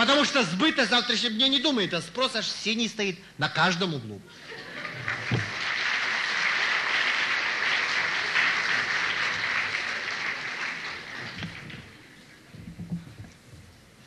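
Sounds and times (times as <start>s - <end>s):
large audience applauding: 4.6s - 12.1s.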